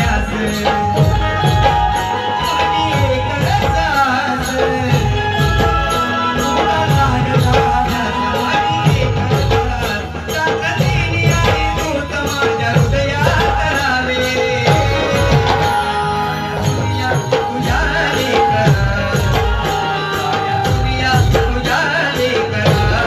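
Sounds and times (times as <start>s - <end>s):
drum steady rhythm: 0.0s - 23.0s
held instrumental tones: 0.0s - 23.0s
jingling percussion: 0.0s - 23.0s.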